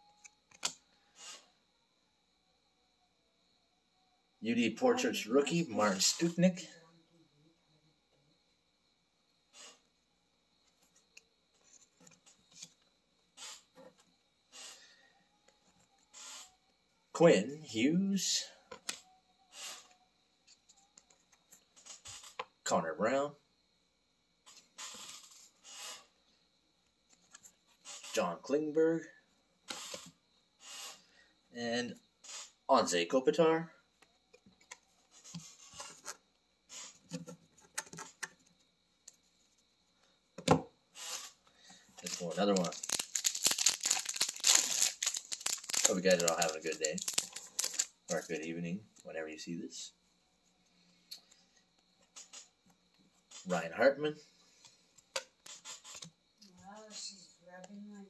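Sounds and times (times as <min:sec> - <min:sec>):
cards and wrappers rustling: 0:42.0 - 0:48.5.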